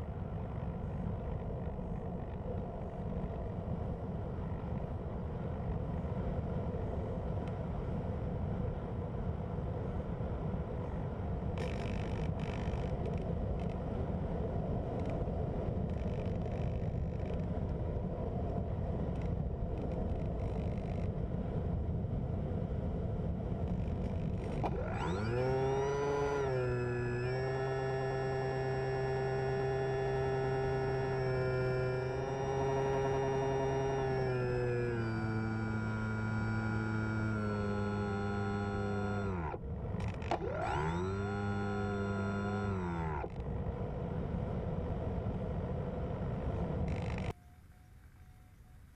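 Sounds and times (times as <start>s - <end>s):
electric motor and propeller drone: 10.5s - 48.5s.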